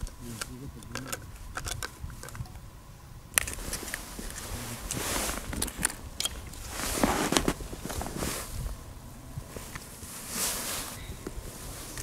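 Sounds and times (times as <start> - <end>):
wind rumble on microphone: 0.0 - 12.0
snow crunching: 3.5 - 5.6, 6.4 - 12.0
winter suit rustling: 3.5 - 5.8, 6.4 - 12.0.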